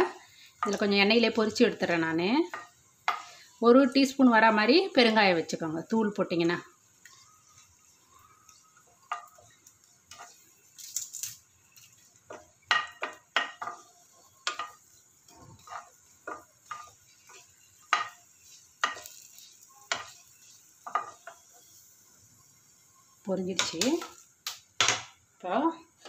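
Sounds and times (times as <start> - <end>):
faint oil sizzle: 0.0 - 26.0
wooden spatula scraping a pan: 7.0 - 11.0, 11.8 - 21.7.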